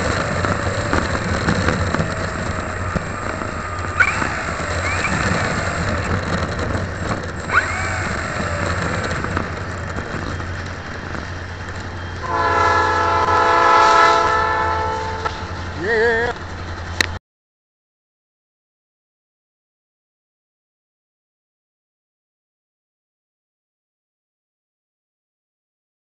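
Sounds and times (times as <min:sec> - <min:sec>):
model aeroplane propeller noise: 0:00.0 - 0:13.4
wind rush: 0:00.0 - 0:16.8
chord-like horn blast: 0:12.2 - 0:15.5.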